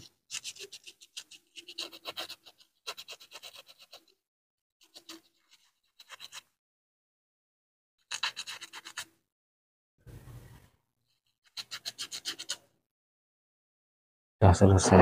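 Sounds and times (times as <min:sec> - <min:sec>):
sandpaper scraping metal: 0:11.5 - 0:12.6.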